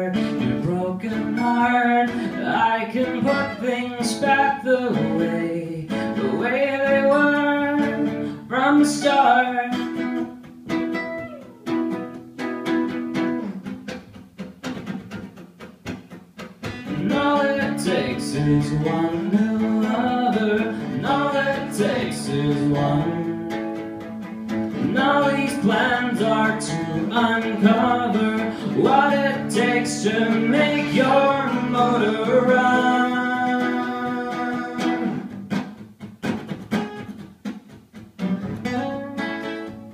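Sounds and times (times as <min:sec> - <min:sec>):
man singing: 0:00.0 - 0:10.4, 0:16.6 - 0:24.0, 0:24.7 - 0:35.3
acoustic guitars strummed: 0:00.0 - 0:39.9.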